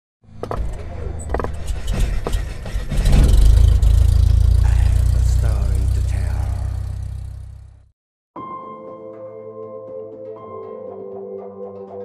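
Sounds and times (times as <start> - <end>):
deep rumble: 0.8 - 7.9.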